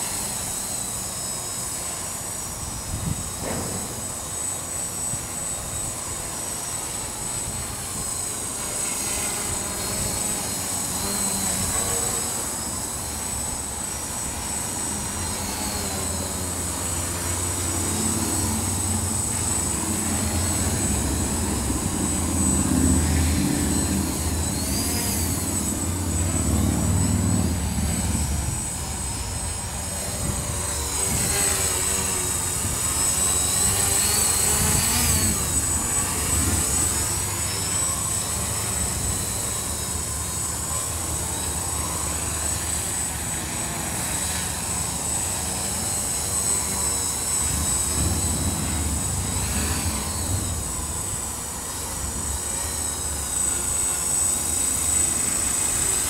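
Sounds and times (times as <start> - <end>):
drone propellers whining: 0.0 - 56.0
wind rumble on microphone: 2.7 - 4.0, 19.8 - 33.0, 33.7 - 37.4, 47.4 - 52.3.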